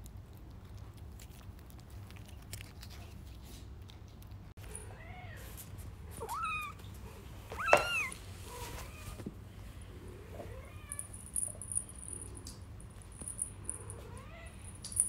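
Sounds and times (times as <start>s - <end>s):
kitten meowing: 6.2s - 6.8s, 7.5s - 8.2s.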